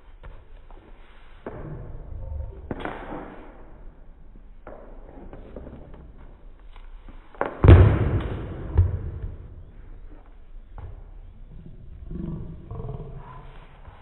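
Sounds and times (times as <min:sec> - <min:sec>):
loud thump: 0:07.6 - 0:09.5.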